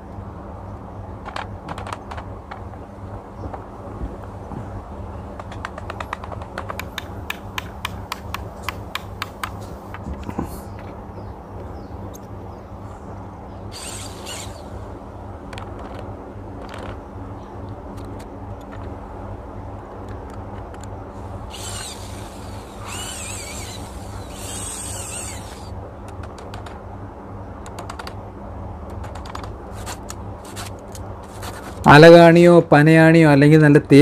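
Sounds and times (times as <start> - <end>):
low machine hum: 0.0 - 32.2
electric drill whining: 13.7 - 14.9, 21.5 - 25.7.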